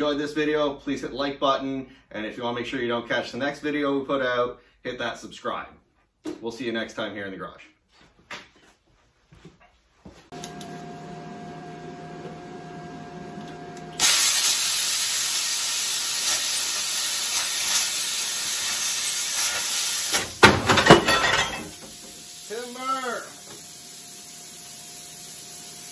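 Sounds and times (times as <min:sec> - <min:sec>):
machine hum: 0:10.4 - 0:14.0
plasma torch hissing: 0:14.0 - 0:20.5, 0:21.7 - 0:25.9.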